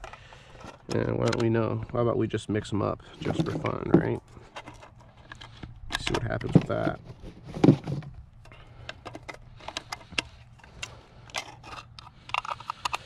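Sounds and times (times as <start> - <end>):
shotgun shells clicking into magazine: 8.8 - 13.0.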